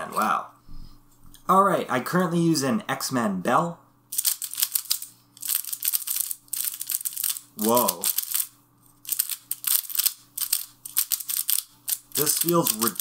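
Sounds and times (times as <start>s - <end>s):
plastic puzzle clicking: 9.1s - 13.0s.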